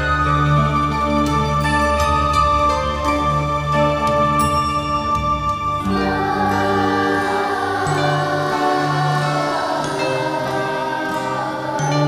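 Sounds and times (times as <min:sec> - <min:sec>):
instrumental accompaniment: 0:00.0 - 0:12.0
children singing: 0:05.8 - 0:12.0.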